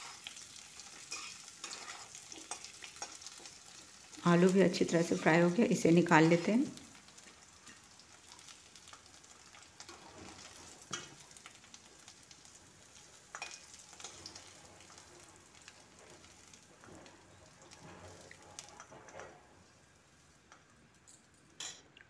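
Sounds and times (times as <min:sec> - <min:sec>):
faint oil sizzling: 0:00.0 - 0:21.8
metal spatula scraping pan: 0:01.0 - 0:03.6, 0:16.0 - 0:19.5.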